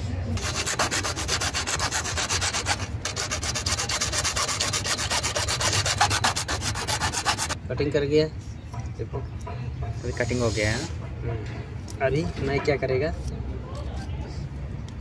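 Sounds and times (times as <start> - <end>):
hacksaw sawing plastic pipe: 0.4 - 7.6.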